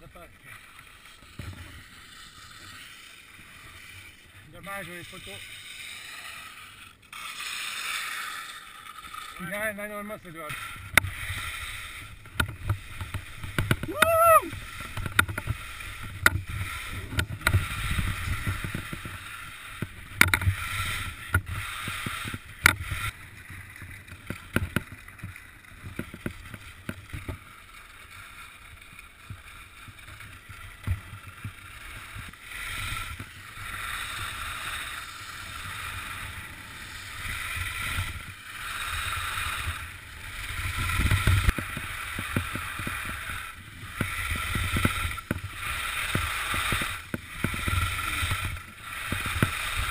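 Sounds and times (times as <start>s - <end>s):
skis scraping over snow: 0.0s - 49.9s
wind rumbling on microphone: 10.8s - 27.4s
sharp clicks and knocks: 14.8s - 16.4s, 19.8s - 20.6s.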